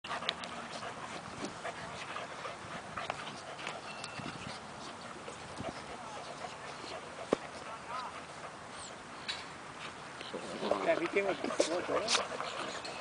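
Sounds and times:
dog vocal noises: 10.2 - 13.0.

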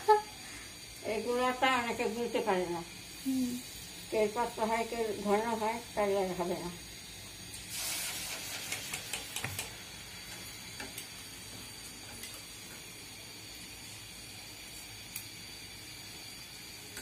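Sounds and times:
batter sizzling in hot oil: 0.0 - 17.0
metal clicks and taps: 8.9 - 9.7.

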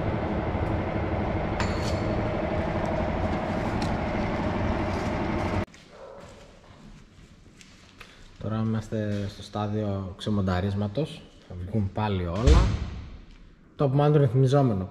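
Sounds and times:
metal lathe rumbling: 0.0 - 5.7.

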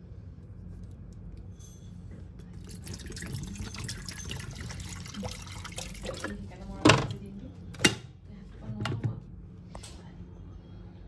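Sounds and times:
water pouring into metal kettle: 2.6 - 6.6.

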